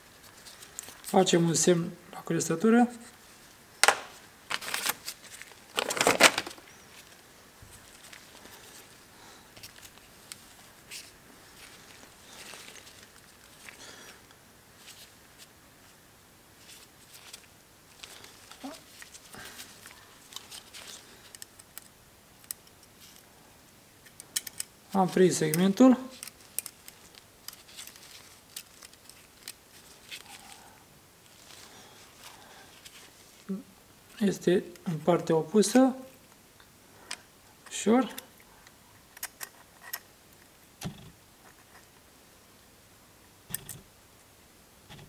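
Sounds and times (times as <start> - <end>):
light clicks and rustles of tools: 0.2 - 1.2, 3.8 - 15.5, 16.6 - 33.5, 35.7 - 42.1.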